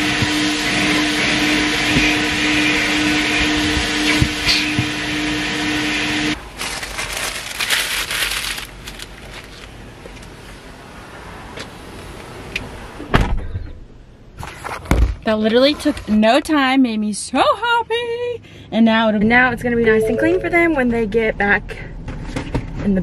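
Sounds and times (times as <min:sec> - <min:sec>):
vacuum hose suction: 0:00.0 - 0:06.4.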